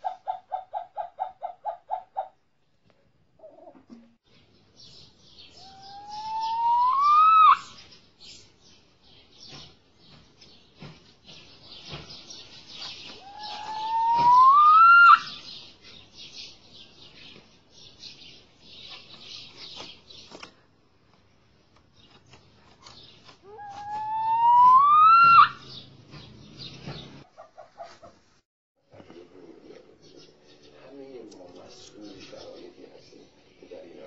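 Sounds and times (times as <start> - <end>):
small birds twittering: 4.3 - 20.7, 21.9 - 28.0, 29.4 - 34.0
rising bird whistles: 5.6 - 7.8, 13.2 - 15.4, 23.8 - 25.7.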